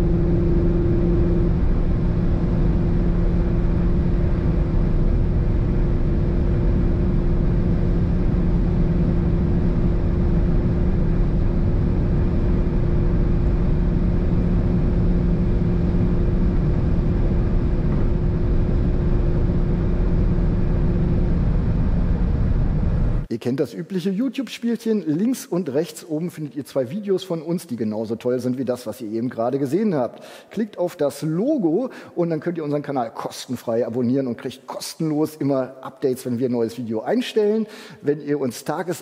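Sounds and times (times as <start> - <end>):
car engine at full throttle: 0.0 - 23.3
wind and road noise: 0.0 - 23.3.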